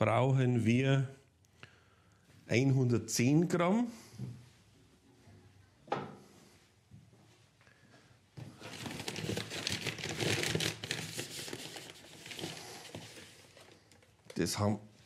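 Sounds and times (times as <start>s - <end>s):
packaging crinkling and rustling: 8.4s - 14.5s.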